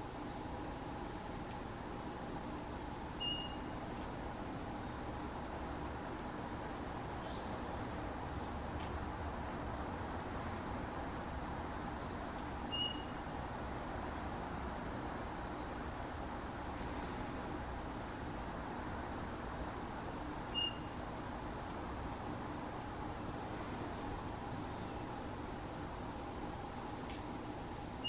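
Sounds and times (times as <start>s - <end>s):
insects trilling: 0.0s - 28.0s
bird song of high notes: 1.8s - 3.7s, 11.8s - 13.2s, 19.1s - 20.9s.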